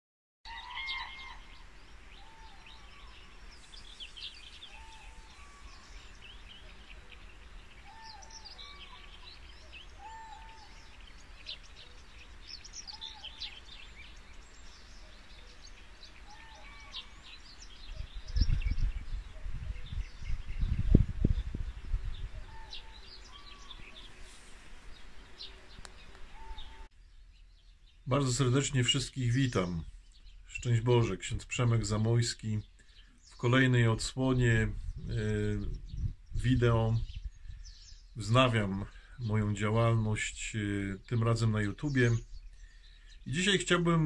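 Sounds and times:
bird repeating short call: 0:00.5 - 0:12.0, 0:16.2 - 0:17.2, 0:22.4 - 0:24.1, 0:26.3 - 0:26.9
songbirds chirping: 0:00.5 - 0:44.0.

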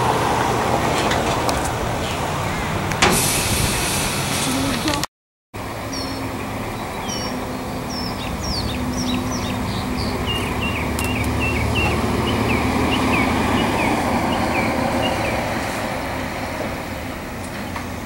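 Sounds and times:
diesel locomotive idling: 0:00.0 - 0:05.0, 0:05.6 - 0:18.0
bird chirping: 0:05.9 - 0:15.7.

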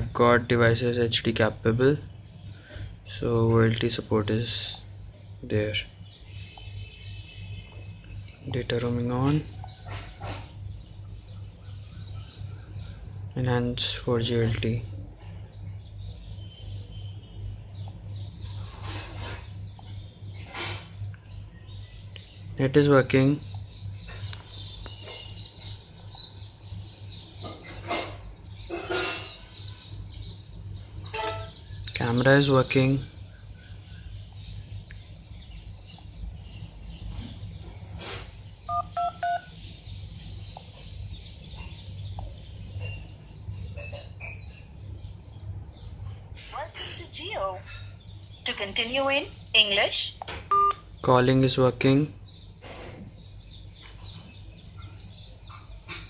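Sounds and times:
phone keypad tones: 0:38.7 - 0:39.5, 0:50.5 - 0:50.8.

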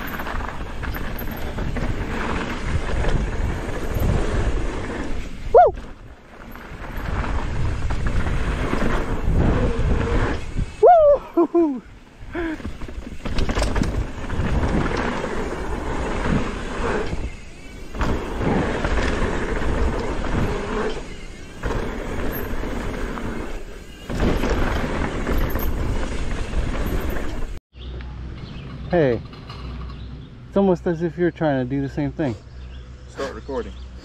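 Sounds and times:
mountain bike rattling on dirt trail: 0:00.0 - 0:27.6
wind buffeting microphone: 0:06.8 - 0:11.3.

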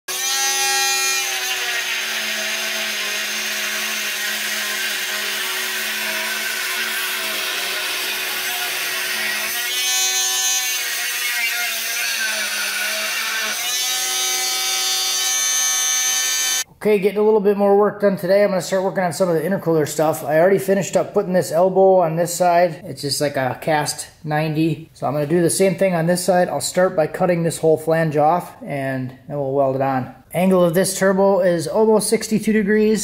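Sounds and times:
rotary power tool whining: 0:00.1 - 0:16.7.

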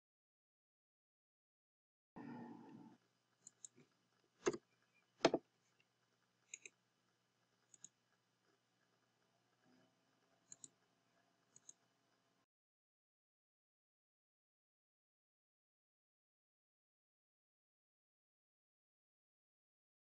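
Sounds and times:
keyboard and mouse clicks: 0:03.4 - 0:04.6, 0:06.5 - 0:06.8, 0:07.7 - 0:08.0, 0:10.5 - 0:10.8, 0:11.5 - 0:11.8.

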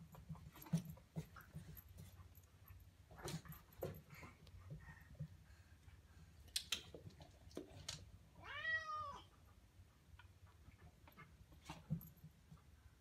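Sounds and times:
cat meowing: 0:08.4 - 0:09.3.

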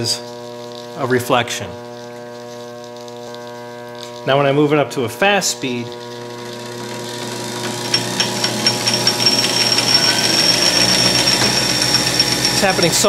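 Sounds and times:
high whine: 0:01.0 - 0:13.0
lathe speeding up: 0:05.6 - 0:13.0.

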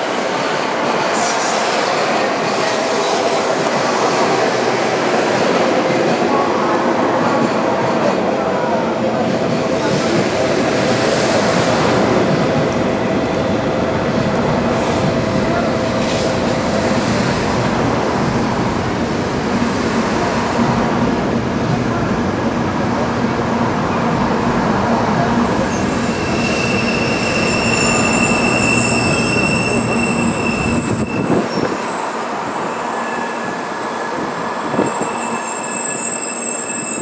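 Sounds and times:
high-pitched wheel squeal: 0:25.4 - 0:32.0, 0:32.6 - 0:37.0.

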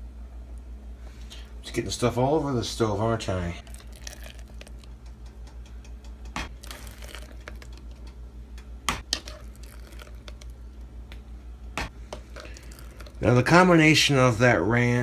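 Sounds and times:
spoon squelching mayonnaise: 0:09.1 - 0:10.7, 0:12.1 - 0:13.3.

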